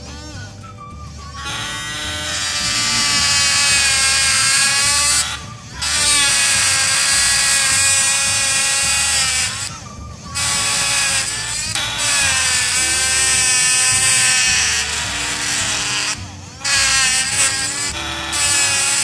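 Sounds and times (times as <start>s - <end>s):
electric engraving pen buzzing: 1.4s - 19.0s.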